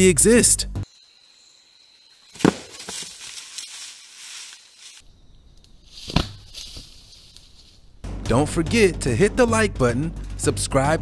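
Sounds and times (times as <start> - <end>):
rustling and scuffing in leaves: 2.2 - 5.1, 5.8 - 8.0.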